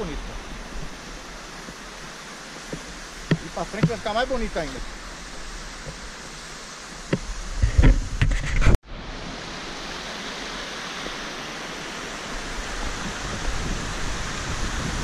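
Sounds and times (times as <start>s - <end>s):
river water rushing over rock: 0.0s - 8.2s, 8.9s - 15.0s
low thumps on microphone: 2.7s - 4.1s.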